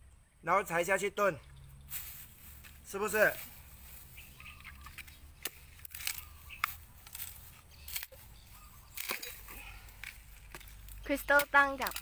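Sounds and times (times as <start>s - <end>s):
coconut husk clicks and scrapes: 1.9s - 12.0s.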